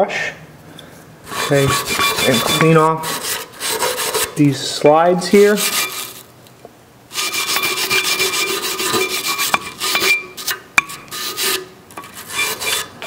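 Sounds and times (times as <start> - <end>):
wire brush scrubbing steel: 1.3 - 4.6, 5.2 - 6.2, 7.1 - 13.0.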